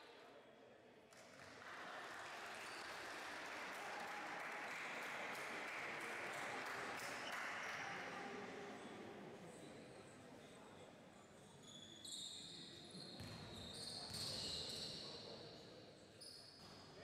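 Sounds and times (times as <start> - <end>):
spectators applauding: 1.2 - 8.6.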